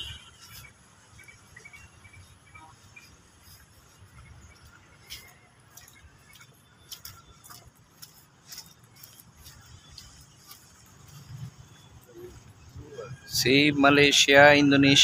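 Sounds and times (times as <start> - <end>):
footsteps on wet stone: 2.7 - 12.0.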